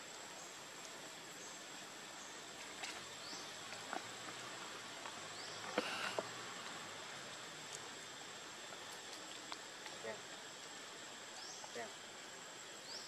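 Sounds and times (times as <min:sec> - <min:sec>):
insect buzz: 0:00.0 - 0:13.0.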